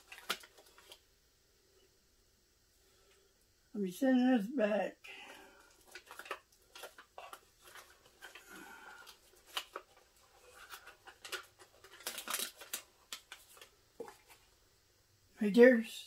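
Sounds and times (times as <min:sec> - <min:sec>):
plastic bag crinkling: 0:00.0 - 0:01.1, 0:05.2 - 0:14.5.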